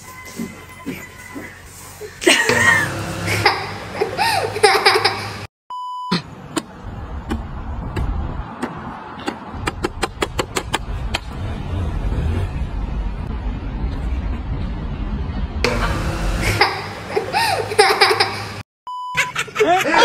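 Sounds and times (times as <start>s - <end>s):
short electronic beep: 5.7s - 6.2s, 18.9s - 19.4s
low street rumble: 6.3s - 18.6s.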